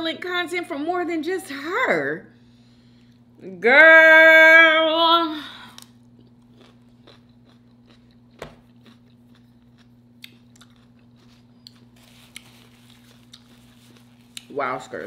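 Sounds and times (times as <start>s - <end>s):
low steady hum: 0.0s - 15.0s
chewing crunchy chip: 5.7s - 14.5s.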